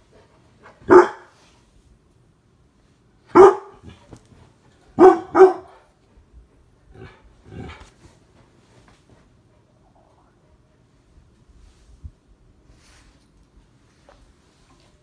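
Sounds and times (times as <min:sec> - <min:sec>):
dog barking: 0:00.8 - 0:01.3, 0:03.3 - 0:04.0, 0:05.0 - 0:05.9.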